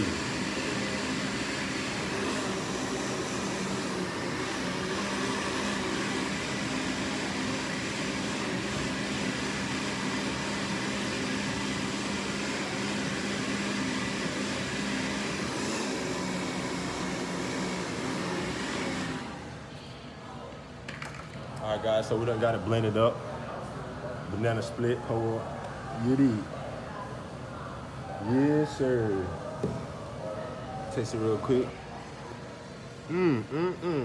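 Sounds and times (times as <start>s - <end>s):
blender whirring: 0.0s - 19.6s.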